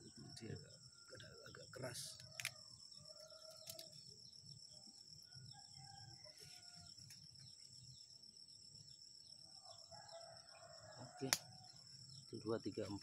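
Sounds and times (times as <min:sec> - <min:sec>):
rooster crowing: 0:02.3 - 0:03.9, 0:05.2 - 0:07.0, 0:09.6 - 0:11.8.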